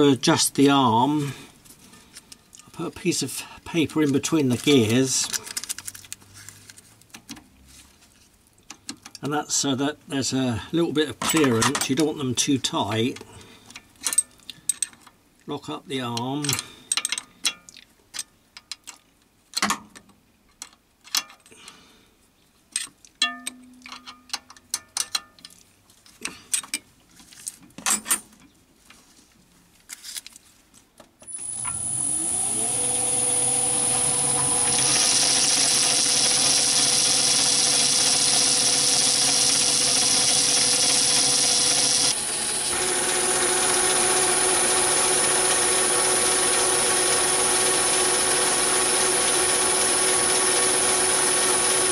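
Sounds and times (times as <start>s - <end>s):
lathe running with high whine: 31.3s - 51.9s.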